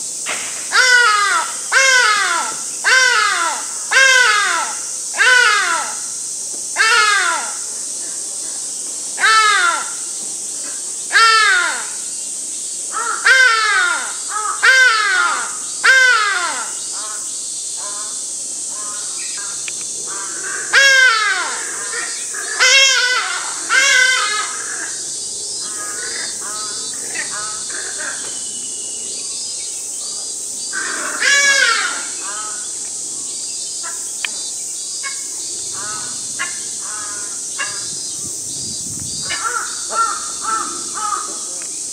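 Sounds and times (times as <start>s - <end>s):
high-pitched insect drone: 0.0s - 41.9s
ibis harsh calls: 0.7s - 6.2s, 12.9s - 28.5s, 30.0s - 32.8s, 35.0s - 38.3s, 39.2s - 41.6s.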